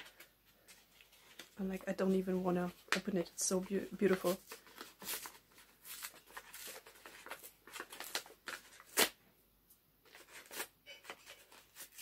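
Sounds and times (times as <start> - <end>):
wrapping paper crinkling and rustling: 0.0 - 9.2, 10.0 - 12.0
sharp paper crackle: 3.8 - 9.2, 10.1 - 12.0.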